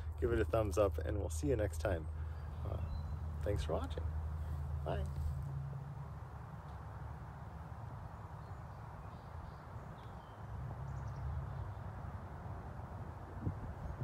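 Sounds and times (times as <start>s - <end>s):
faint bird chirps: 2.0s - 3.3s
wind rumbling on microphone: 7.8s - 14.0s.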